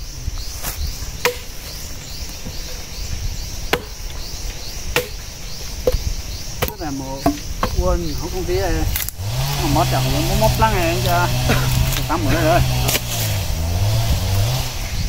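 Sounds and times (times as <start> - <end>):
insects chirping: 0.0 - 15.0
firewood being chopped: 0.6 - 14.7.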